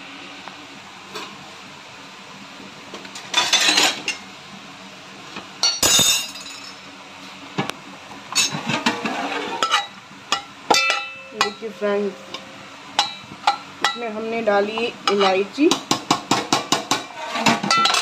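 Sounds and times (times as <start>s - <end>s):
metal clinks on cooking pot: 9.7s - 11.7s.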